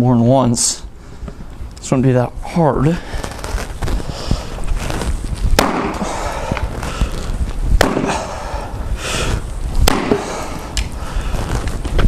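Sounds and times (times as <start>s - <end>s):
axe chopping into wood: 5.6s - 6.1s, 7.8s - 8.2s, 9.8s - 10.3s.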